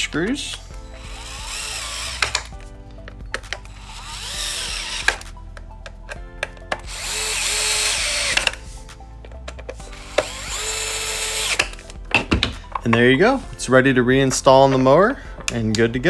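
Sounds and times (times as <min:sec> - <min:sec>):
electric screwdriver motor whine: 0:00.8 - 0:02.6, 0:03.6 - 0:05.3, 0:06.8 - 0:08.6, 0:09.8 - 0:11.8
sharp clicks: 0:01.4 - 0:02.6.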